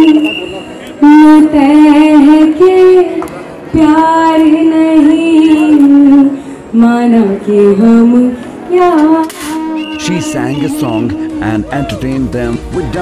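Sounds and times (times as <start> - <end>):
woman singing through pa: 1.0 - 10.0.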